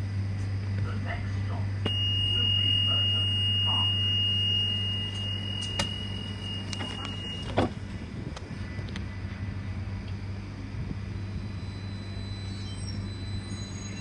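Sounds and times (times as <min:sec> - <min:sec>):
tram electrical hum: 0:00.0 - 0:14.0
high-pitched warning tone: 0:01.8 - 0:07.7, 0:11.0 - 0:14.0
sliding doors shutting: 0:06.7 - 0:07.8.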